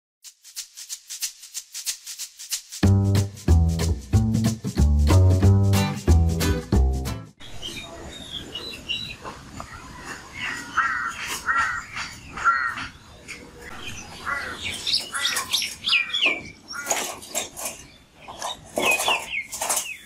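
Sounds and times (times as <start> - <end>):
small birds chirping: 7.4 - 20.0
crow cawing harshly: 10.8 - 12.9, 14.2 - 15.5.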